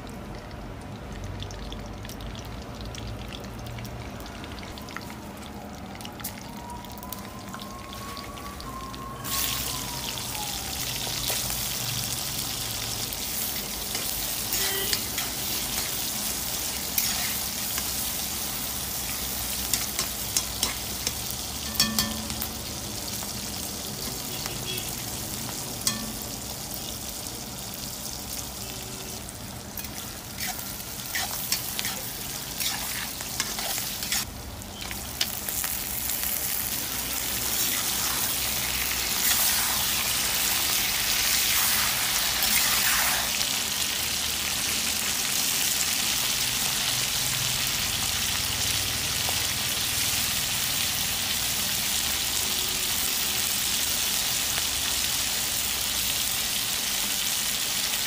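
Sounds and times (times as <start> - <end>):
onions frying in hot oil: 0.0 - 58.0
metal spatula scraping pot: 29.8 - 34.2.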